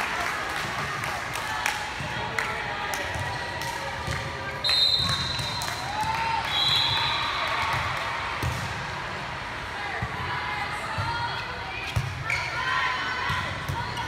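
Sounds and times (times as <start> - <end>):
voices of players and spectators: 0.0 - 14.0
referee's whistle blowing: 4.6 - 5.7, 6.5 - 7.2
ball bouncing on court floor: 7.7 - 8.7.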